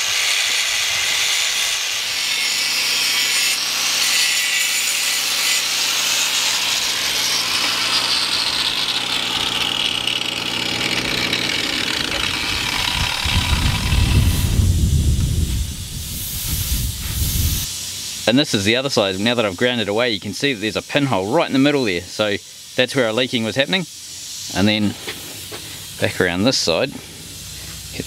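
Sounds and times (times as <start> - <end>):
power grinder grinding steel: 0.0 - 15.4.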